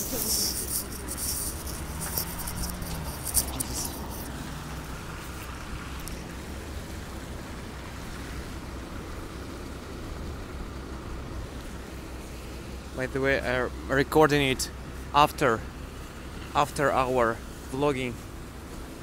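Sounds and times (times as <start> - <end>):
crackly rustling: 0.0 - 13.0
low engine rumble: 0.0 - 19.0
car driving past on wet road: 1.4 - 12.9.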